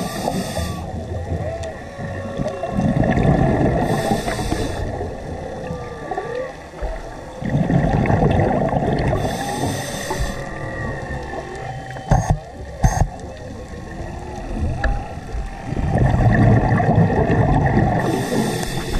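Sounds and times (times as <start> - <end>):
regulator inhalation hiss: 0.0 - 0.9, 3.8 - 5.0, 9.2 - 10.5, 18.0 - 18.9
exhaled bubbles rumbling: 0.0 - 18.9
faint gliding tones: 0.0 - 18.9.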